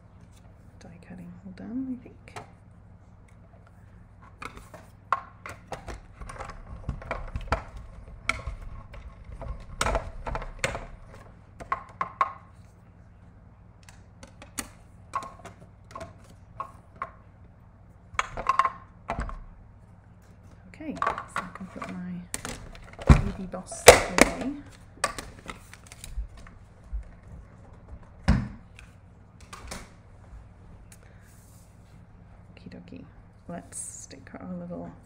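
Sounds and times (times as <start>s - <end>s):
plastic plates clicking and knocking: 4.4s - 12.5s, 18.2s - 19.4s, 20.9s - 25.6s.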